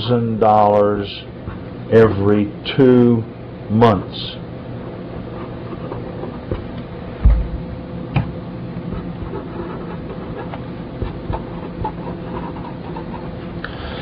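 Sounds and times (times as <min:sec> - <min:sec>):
electrical hum: 0:00.0 - 0:14.0
marker writing on paper: 0:05.2 - 0:06.6, 0:08.9 - 0:13.5
soft low thumps: 0:07.2 - 0:09.1.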